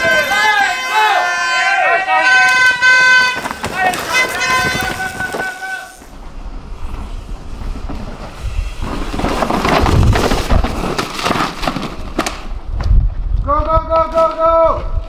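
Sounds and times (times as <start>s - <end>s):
bike tyres on dirt and rocks: 0.0s - 15.0s
bike chain and frame rattle: 2.6s - 12.6s.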